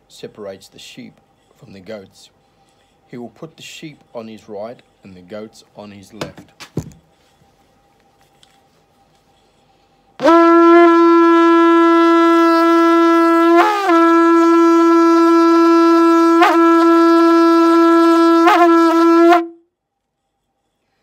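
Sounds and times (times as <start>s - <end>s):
shofar horn blast: 10.2s - 19.7s.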